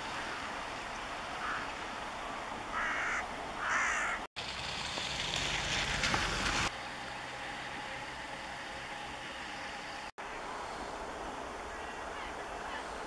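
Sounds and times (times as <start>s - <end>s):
crow-like caws: 1.4s - 1.8s, 2.7s - 4.3s.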